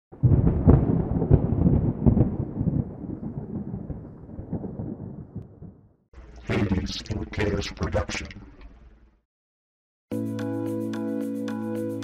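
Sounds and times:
thunder-like rumble with booms: 0:00.1 - 0:06.0.

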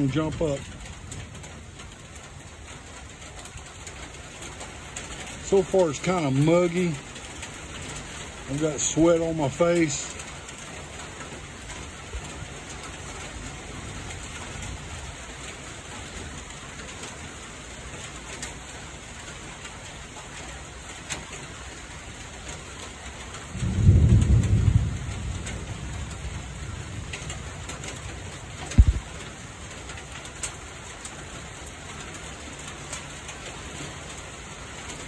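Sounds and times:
steady rain falling: 0:00.0 - 0:35.0
thunder rumbling: 0:23.5 - 0:29.6.

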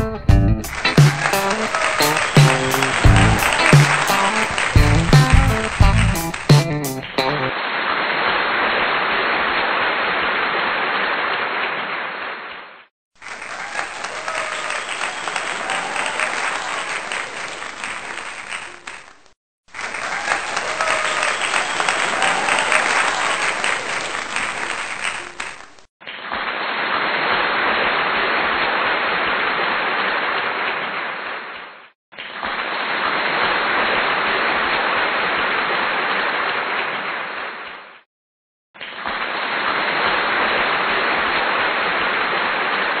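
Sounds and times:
canned crowd applause: 0:00.7 - 0:07.6, 0:13.2 - 0:25.9.

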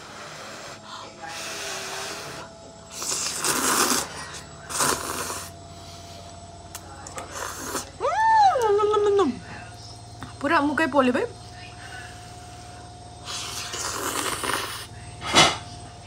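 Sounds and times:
person slurping noodles: 0:02.9 - 0:05.6, 0:07.3 - 0:07.9, 0:13.2 - 0:14.9.

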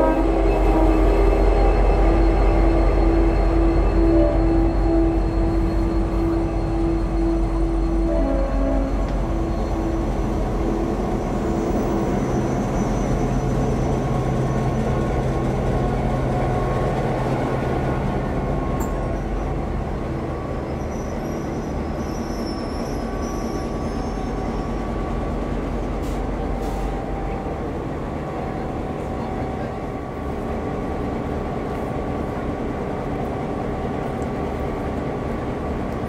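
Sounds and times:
rail rumble: 0:00.0 - 0:36.0
faint high squeal: 0:00.6 - 0:10.3, 0:10.9 - 0:14.2, 0:20.4 - 0:25.0.

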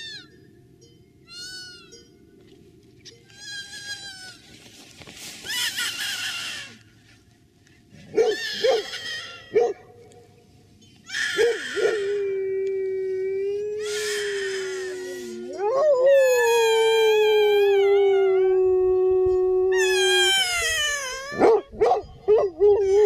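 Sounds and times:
dog howling: 0:11.4 - 0:20.7.

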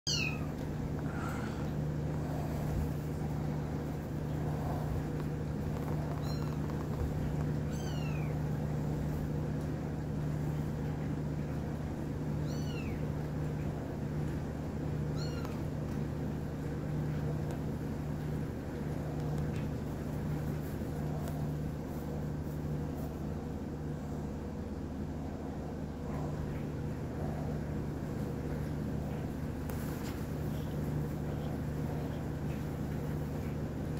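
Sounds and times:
steady low hum: 0:00.1 - 0:33.9
kitten mewing: 0:05.8 - 0:07.0.

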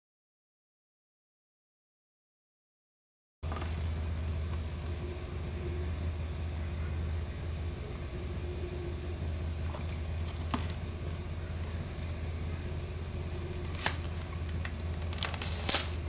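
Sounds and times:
steady low hum: 0:03.4 - 0:16.0
cellophane crackling: 0:13.2 - 0:16.0.

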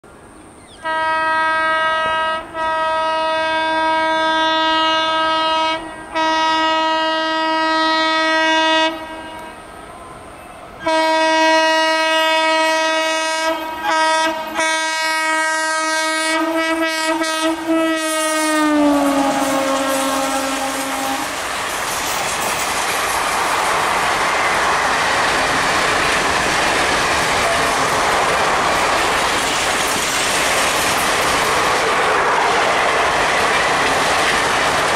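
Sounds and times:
locomotive horn blasts: 0:00.8 - 0:09.7, 0:10.8 - 0:21.4
train coaches rushing and clattering: 0:01.8 - 0:34.9.

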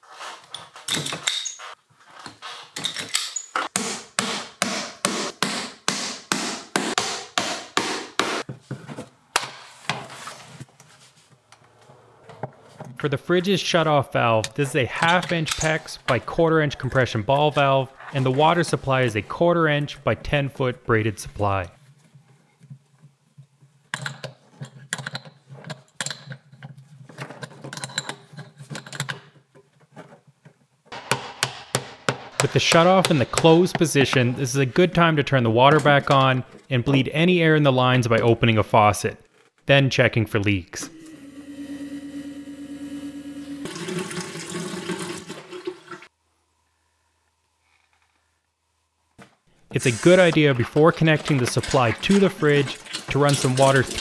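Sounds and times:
hammer driving nails into wood: 0:03.7 - 0:08.4, 0:31.0 - 0:32.5.

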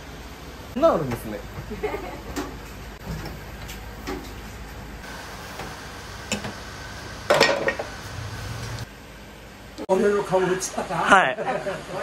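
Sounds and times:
metal kitchenware clattering: 0:07.3 - 0:07.9.

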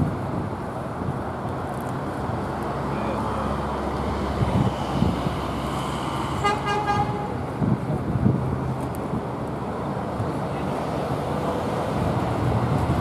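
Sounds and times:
road traffic passing: 0:00.0 - 0:13.0
vehicle horn tooting: 0:06.4 - 0:07.3.

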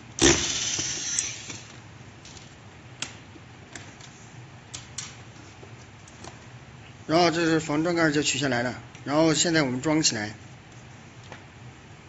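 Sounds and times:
electric screwdriver running: 0:00.2 - 0:01.7.

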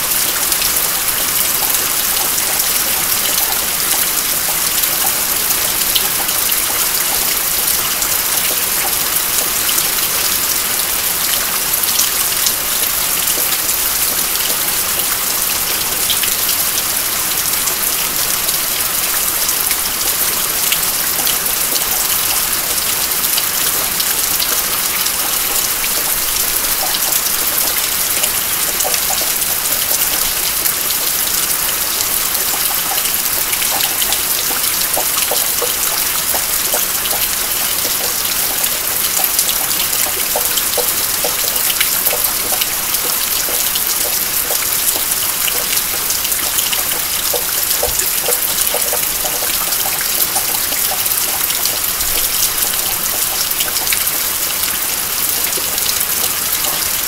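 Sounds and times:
water dripping from roof: 0:00.0 - 0:57.0.

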